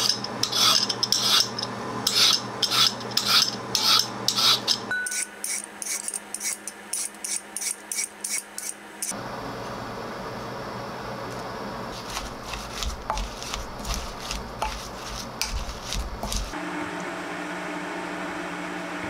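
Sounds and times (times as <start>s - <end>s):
peeler rasping on carrot: 0.0s - 8.8s, 11.9s - 16.6s.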